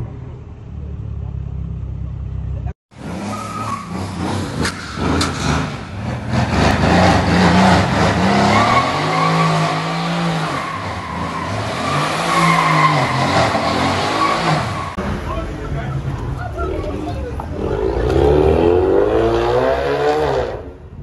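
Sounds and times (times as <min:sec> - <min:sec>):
car engine revving: 0:02.9 - 0:15.7, 0:17.4 - 0:20.8.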